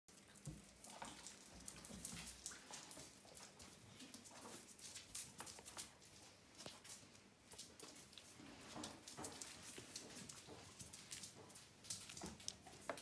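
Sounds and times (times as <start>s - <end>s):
dog ticking on cork floor: 7.5s - 13.0s.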